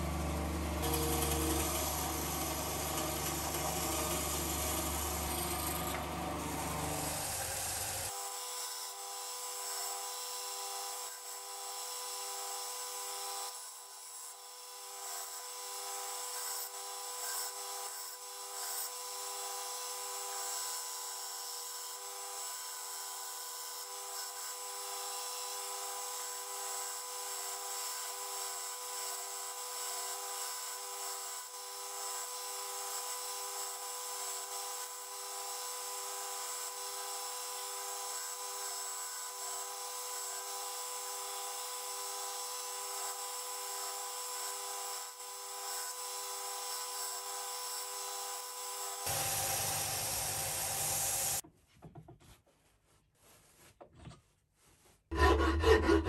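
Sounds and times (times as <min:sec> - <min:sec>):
belt sander motor hum: 0:00.0 - 0:08.1, 0:49.1 - 0:51.4
belt sanding wood hiss: 0:49.0 - 0:51.4.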